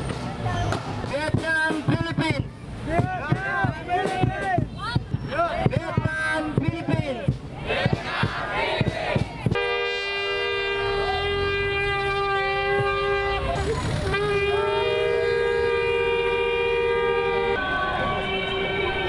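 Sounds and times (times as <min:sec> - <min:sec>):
shofar horns blowing: 0:09.6 - 0:19.0.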